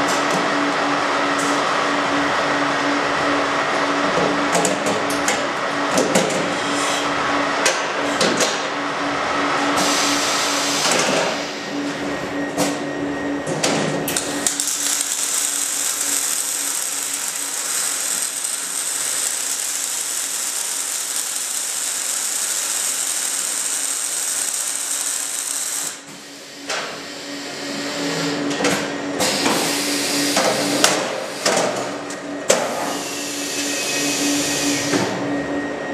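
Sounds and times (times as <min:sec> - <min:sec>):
steady machine hum: 0:08.7 - 0:29.2
welding arc hiss and crackle: 0:14.1 - 0:26.3.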